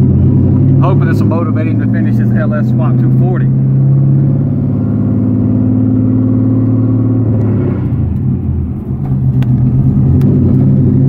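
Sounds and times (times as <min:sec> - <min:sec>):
car engine pulling steadily: 0:00.0 - 0:11.0.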